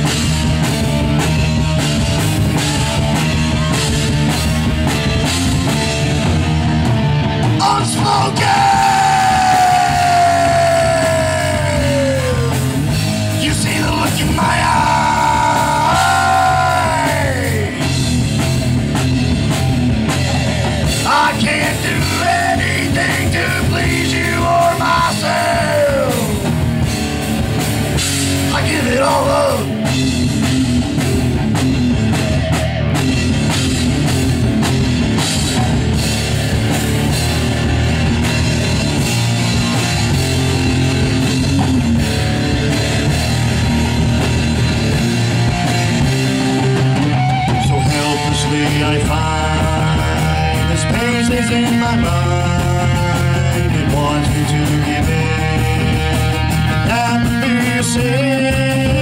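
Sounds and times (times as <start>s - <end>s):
hard rock band playing: 0.0s - 59.0s
singer holding long notes: 7.5s - 18.0s, 20.5s - 26.7s, 47.0s - 56.2s.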